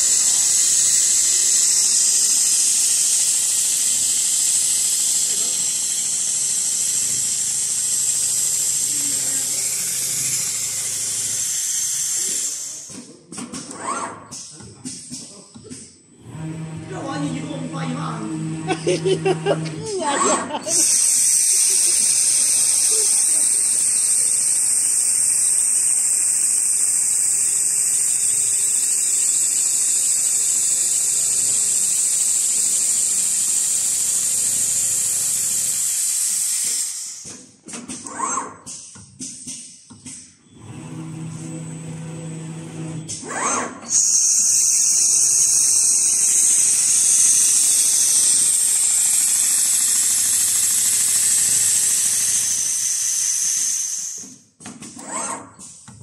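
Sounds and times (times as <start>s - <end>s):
sewing machine stitching: 0.0s - 14.5s, 19.5s - 37.3s, 43.0s - 54.2s, 54.8s - 55.8s.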